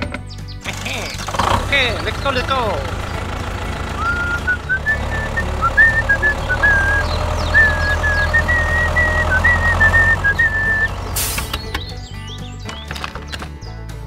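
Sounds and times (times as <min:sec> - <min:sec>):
tractor engine chugging: 0:00.0 - 0:13.7
high whistle-like melody: 0:04.0 - 0:12.4.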